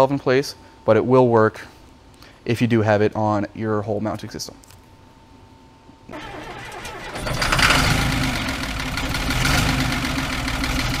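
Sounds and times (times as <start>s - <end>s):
engine cranking and starting: 6.1s - 11.0s.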